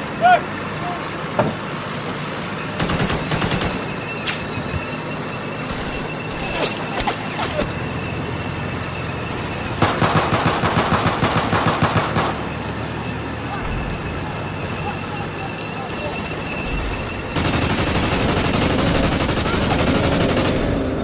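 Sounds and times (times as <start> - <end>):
automatic gunfire: 2.8 - 3.9, 9.8 - 12.5, 17.4 - 21.0.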